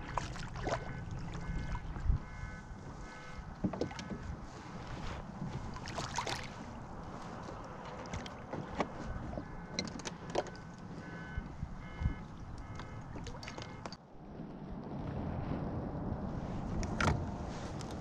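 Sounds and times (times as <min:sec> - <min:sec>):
clicks and knocks from hull: 0:03.6 - 0:04.4, 0:07.5 - 0:11.1
faint whines: 0:06.6 - 0:15.6
low rumble: 0:14.0 - 0:18.0.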